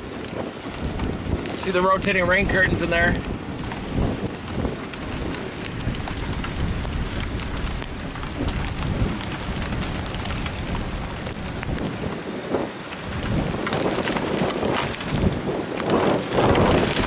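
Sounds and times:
heavy rain on vehicle: 0.0 - 17.0
raindrops ticking: 0.0 - 17.0
steady low rumble: 0.7 - 12.2.

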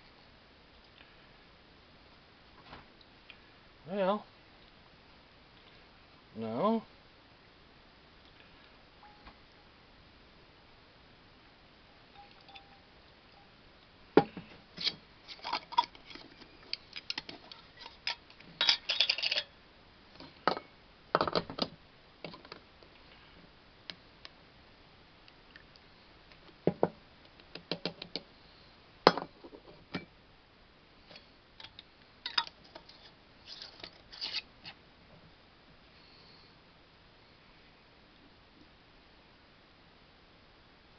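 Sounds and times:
glass jars clinking: 12.1 - 12.8, 17.2 - 19.5, 31.6 - 32.9
metal lid screwed onto jar: 14.8 - 19.5.

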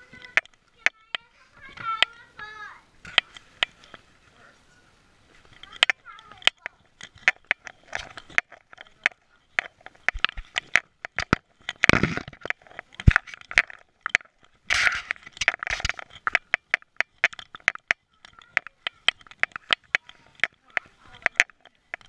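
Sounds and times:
camera rattling clicks and knocks: 0.0 - 2.2, 5.3 - 22.0
rustling scrapes: 1.2 - 17.7.

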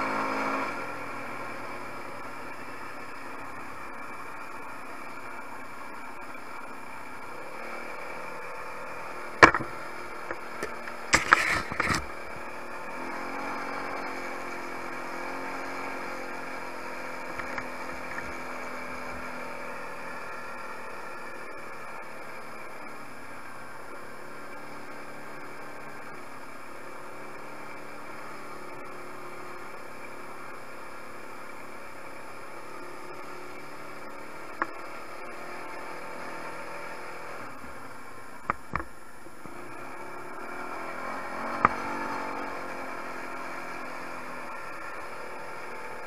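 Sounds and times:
quad bike engine running: 0.0 - 46.0
sharp knocks: 9.4 - 9.7.

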